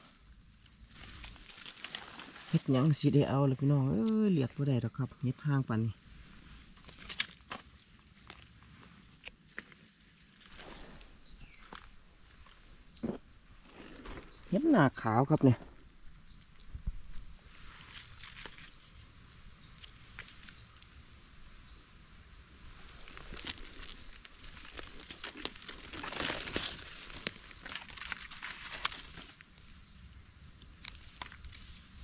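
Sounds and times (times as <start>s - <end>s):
rustling of dry leaves: 0.0s - 32.0s.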